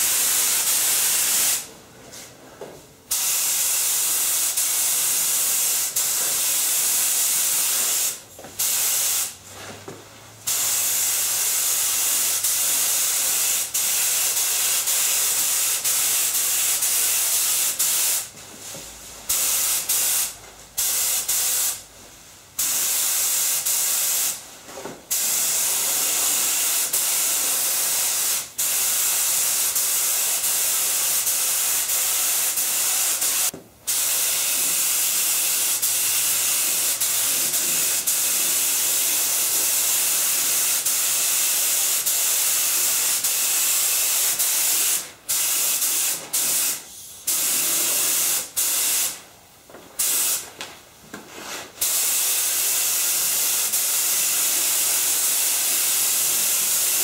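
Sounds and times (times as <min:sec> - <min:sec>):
spray gun hissing: 0:00.0 - 0:01.7, 0:03.1 - 0:09.4, 0:10.5 - 0:18.3, 0:25.1 - 0:49.2, 0:50.0 - 0:50.4, 0:51.8 - 0:57.0.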